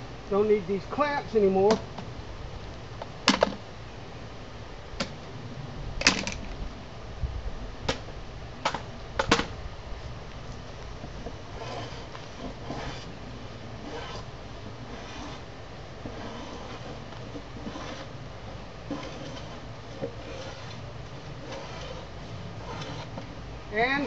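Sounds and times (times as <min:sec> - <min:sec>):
faint rough strokes: 0:10.6 - 0:23.3.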